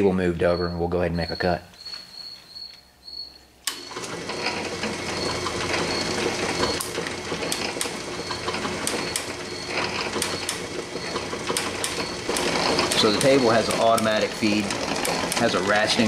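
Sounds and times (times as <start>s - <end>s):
metal shaper running: 0.5s - 16.0s
sharp machine clicks: 5.2s - 16.0s.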